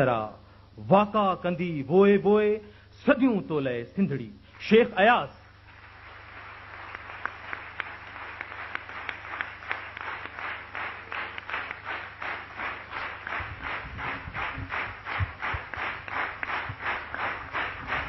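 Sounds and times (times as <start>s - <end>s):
audience applauding: 5.4s - 18.0s
low thumps: 13.3s - 15.8s.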